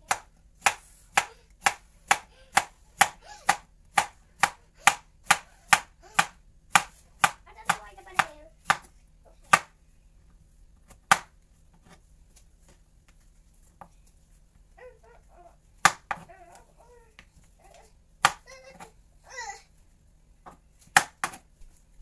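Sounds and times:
knife chopping on wooden board: 0:00.0 - 0:08.9, 0:10.9 - 0:12.0, 0:15.8 - 0:16.3, 0:18.2 - 0:18.4, 0:20.5 - 0:21.4.

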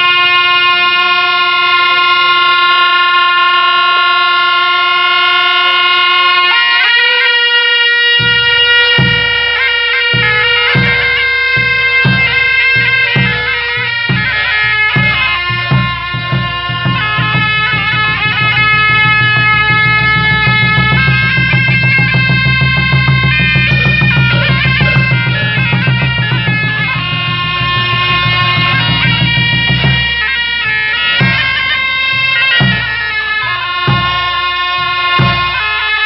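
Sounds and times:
reedy shawm melody: 0:00.0 - 0:36.0
large frame drum strokes: 0:08.2 - 0:35.7.

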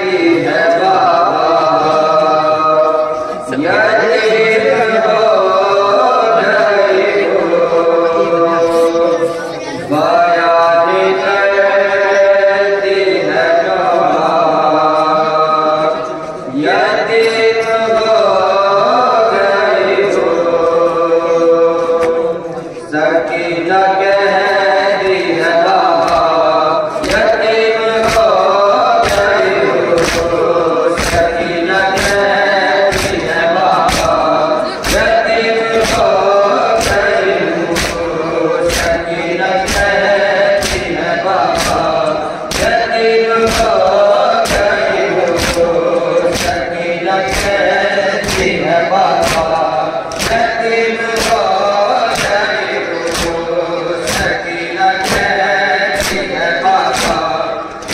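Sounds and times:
men chanting in unison: 0:00.0 - 0:57.9
hands beating on chests: 0:28.0 - 0:28.4, 0:29.0 - 0:32.3, 0:32.9 - 0:35.2, 0:35.8 - 0:37.1, 0:37.7 - 0:47.6, 0:48.2 - 0:48.6, 0:49.2 - 0:57.9.

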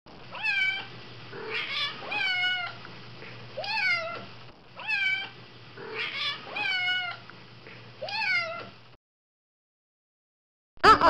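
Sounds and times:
cat meowing: 0:00.3 - 0:02.8, 0:03.6 - 0:07.2, 0:08.0 - 0:08.7.

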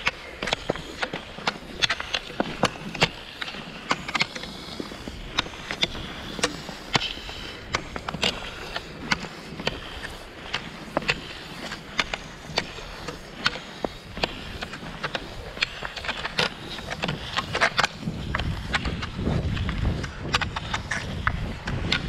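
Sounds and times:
ski poles clicking into snow: 0:00.0 - 0:22.0
skis hissing on snow: 0:00.2 - 0:18.9.

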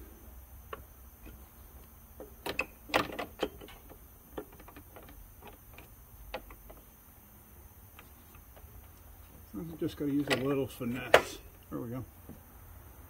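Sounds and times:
metallic clicks and knocks: 0:02.2 - 0:06.8, 0:10.1 - 0:11.4.

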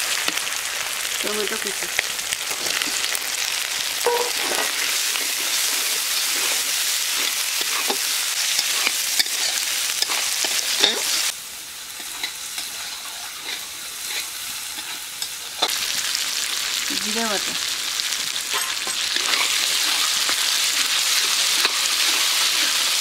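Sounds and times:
tomatoes sizzling in hot oil: 0:00.0 - 0:23.0
spatula scraping metal pan: 0:21.1 - 0:23.0.

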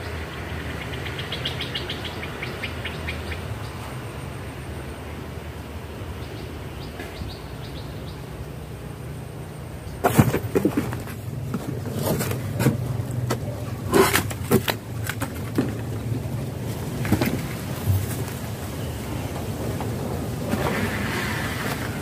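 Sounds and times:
small birds chirping: 0:00.0 - 0:04.1, 0:05.8 - 0:10.0.

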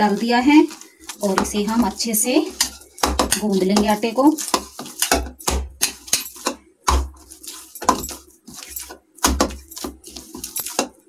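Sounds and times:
metal bangles jingling: 0:00.0 - 0:11.0
dough knocking against bowl: 0:01.2 - 0:11.0.

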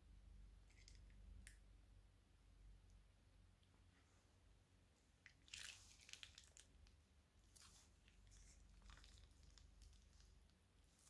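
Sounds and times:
slime squishing from piping bag: 0:05.4 - 0:06.8, 0:07.6 - 0:11.0.

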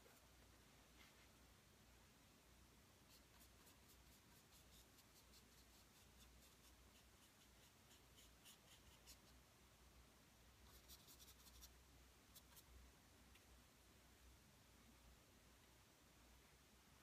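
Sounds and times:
paintbrush scratchy strokes: 0:03.1 - 0:09.4, 0:10.6 - 0:12.7.

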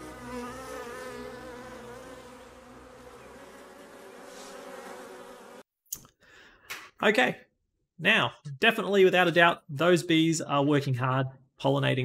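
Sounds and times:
honeybees buzzing: 0:00.0 - 0:05.7.

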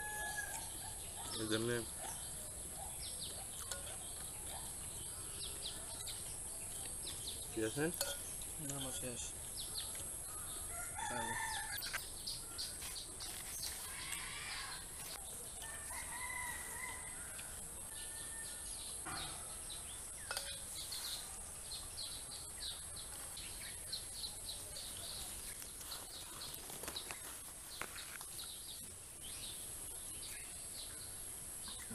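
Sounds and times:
rooster crowing: 0:00.0 - 0:00.7, 0:10.7 - 0:12.0, 0:15.6 - 0:18.7
small bird chirping: 0:00.0 - 0:15.7
steady high-pitched hiss: 0:00.0 - 0:31.9.

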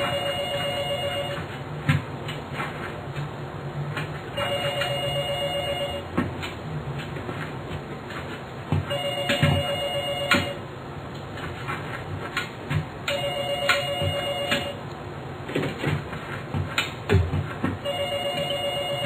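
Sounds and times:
office telephone ringing: 0:00.0 - 0:01.6, 0:04.4 - 0:06.2, 0:08.9 - 0:10.7, 0:13.0 - 0:14.8, 0:17.8 - 0:19.0.

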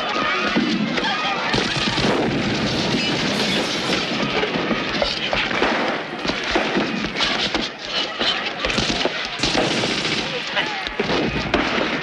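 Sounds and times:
booms: 0:00.2 - 0:12.0
heavy rapid gunfire: 0:01.4 - 0:12.0.

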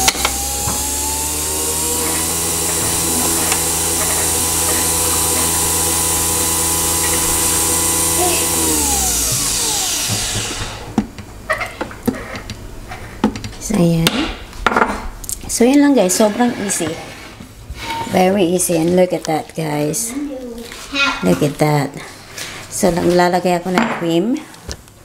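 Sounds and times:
coffee machine motor whine: 0:00.0 - 0:11.1.

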